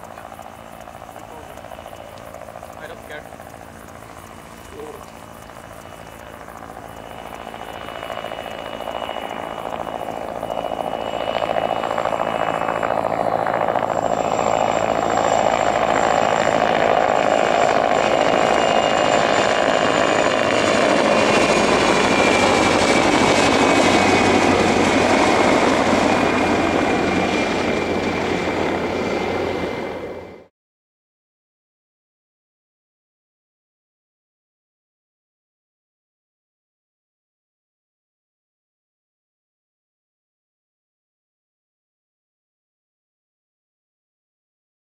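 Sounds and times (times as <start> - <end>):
helicopter engines and rotor: 0.0 - 30.5
high turbine whine: 0.0 - 30.5.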